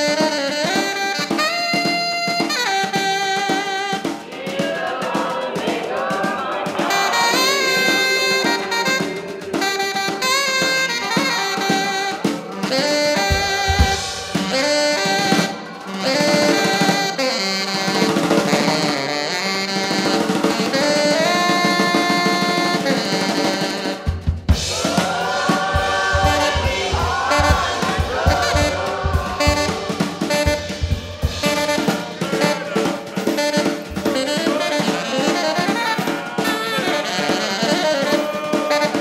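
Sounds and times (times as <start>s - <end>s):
drum kit: 0.0s - 39.0s
tenor saxophone: 0.0s - 39.0s
low drum hits: 24.5s - 34.3s.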